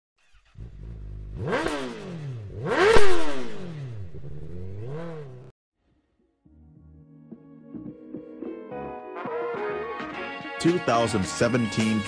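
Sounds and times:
engine idling and revving: 0.2 - 5.5.

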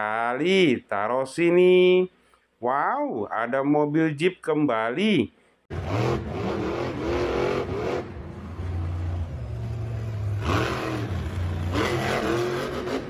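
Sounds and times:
truck engine revving: 5.7 - 13.0.

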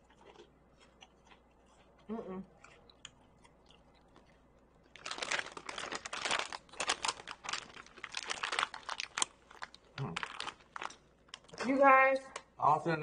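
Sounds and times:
plastic chip bag crinkling: 4.0 - 11.8.

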